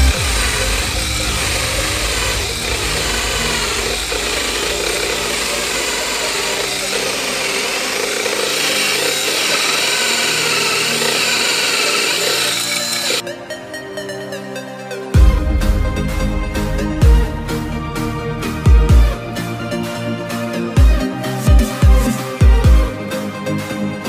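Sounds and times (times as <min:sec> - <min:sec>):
cordless drill running: 0:00.0 - 0:13.2
hole saw grinding through wood: 0:00.0 - 0:13.2.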